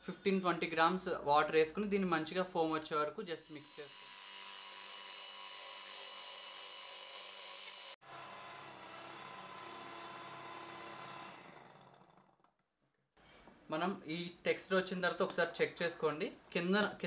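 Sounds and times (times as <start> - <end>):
electric hand mixer whipping: 3.4 - 12.4.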